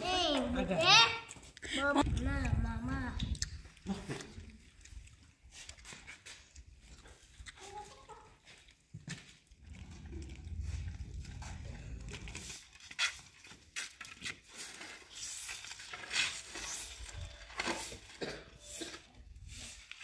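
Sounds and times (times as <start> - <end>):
low rumble: 9.7 - 12.5
brooms sweeping stone pavement: 11.8 - 20.0.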